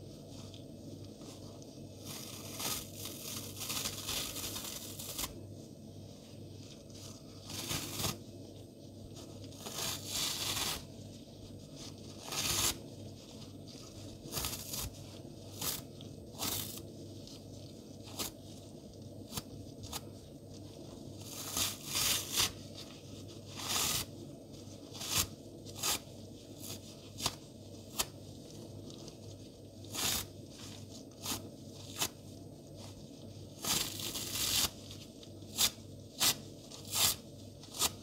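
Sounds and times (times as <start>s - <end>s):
sponge being torn apart: 2.0s - 5.4s, 7.0s - 8.2s, 9.5s - 10.9s, 12.1s - 12.8s, 14.2s - 16.8s, 21.2s - 22.8s, 23.5s - 24.1s, 24.9s - 28.2s, 29.9s - 32.2s, 33.6s - 34.8s, 35.5s - 38.0s.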